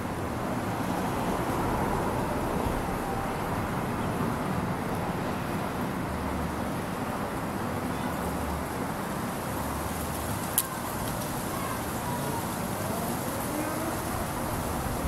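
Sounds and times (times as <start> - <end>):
low outdoor rumble: 0.0 - 6.7, 12.7 - 15.0.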